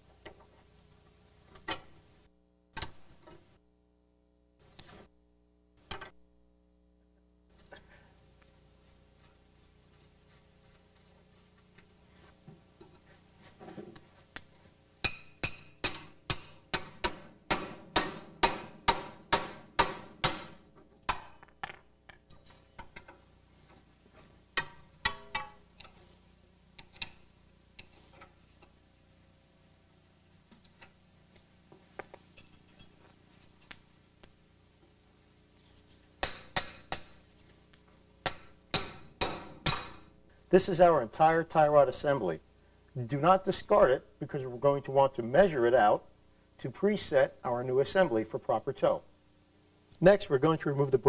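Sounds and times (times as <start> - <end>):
hammer striking metal: 15.0 - 21.4, 36.2 - 37.2, 38.2 - 40.1.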